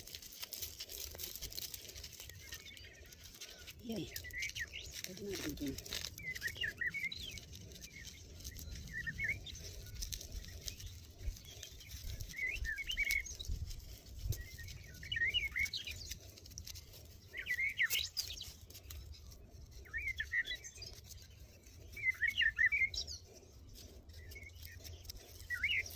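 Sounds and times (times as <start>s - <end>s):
small birds chirping: 0.0s - 25.9s.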